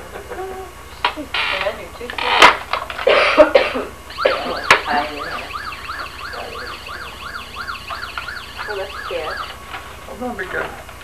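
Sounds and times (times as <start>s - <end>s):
electronic toy siren wailing: 4.1s - 9.6s.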